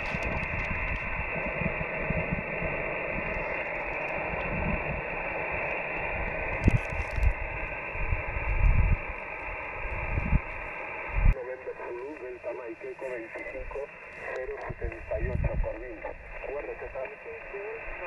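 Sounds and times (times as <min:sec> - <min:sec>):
wind buffeting microphone: 0:00.0 - 0:11.4, 0:14.4 - 0:16.6
radio static hiss: 0:00.0 - 0:18.0.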